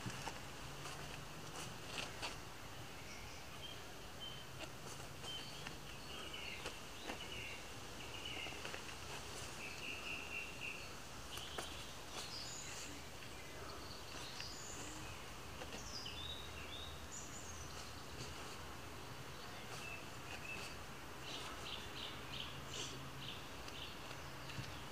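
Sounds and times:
small birds chirping: 0.0s - 24.9s.

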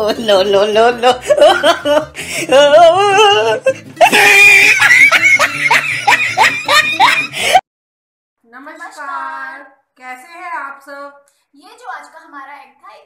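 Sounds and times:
music: 0.0s - 7.6s
people laughing: 0.0s - 7.6s.

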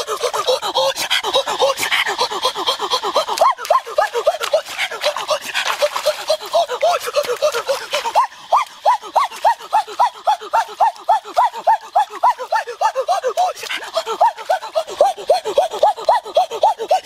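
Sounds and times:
hands splashing in stream water: 3.0s - 16.6s.

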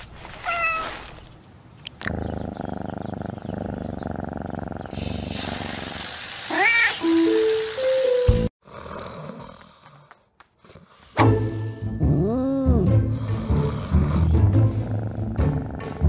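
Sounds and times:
cat meowing: 0.4s - 1.0s, 6.5s - 7.0s
cat purring: 2.0s - 5.9s
lawn sprinklers hissing: 4.9s - 8.4s.

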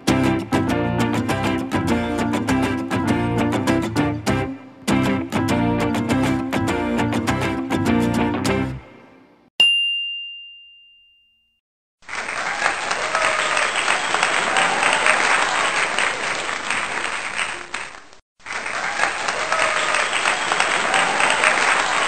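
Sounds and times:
bell-like ding: 9.6s - 11.6s
crowd applauding: 12.0s - 22.0s.

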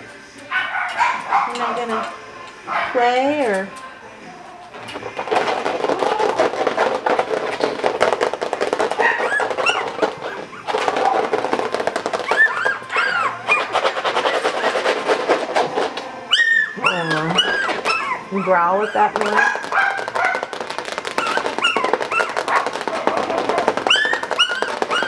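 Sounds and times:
puppy yipping: 0.6s - 1.8s, 8.9s - 11.2s, 12.2s - 14.8s, 16.3s - 20.5s, 21.2s - 25.0s
puppy growling: 8.5s - 25.0s.

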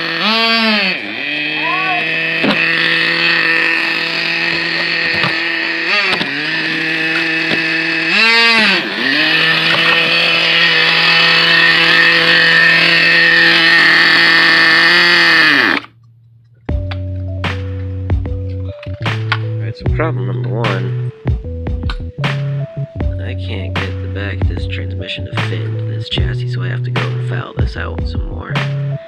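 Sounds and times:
rc car engine idling and revving: 0.0s - 16.0s.

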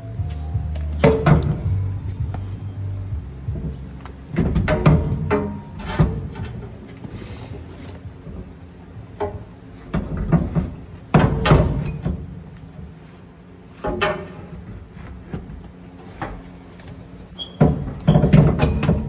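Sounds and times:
metal parts clanking and scraping: 4.3s - 7.4s.

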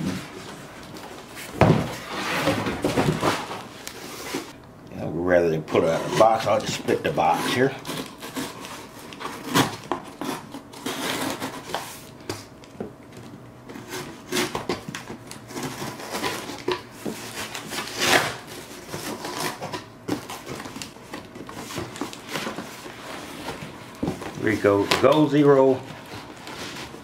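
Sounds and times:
utility knife cutting cardboard: 15.5s - 20.6s.

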